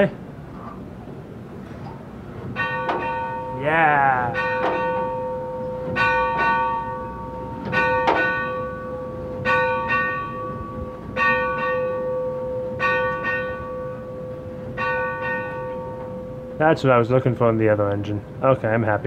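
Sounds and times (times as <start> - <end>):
locomotive bell ringing: 2.6 - 18.7.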